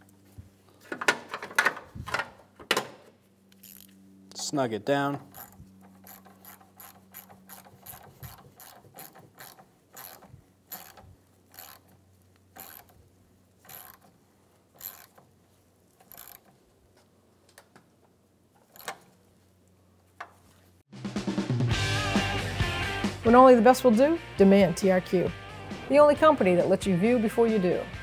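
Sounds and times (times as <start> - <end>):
hand ratchet clicking: 3.5 - 3.9, 5.2 - 13.0, 13.6 - 14.1, 14.8 - 15.3, 16.0 - 16.5, 18.7 - 19.0.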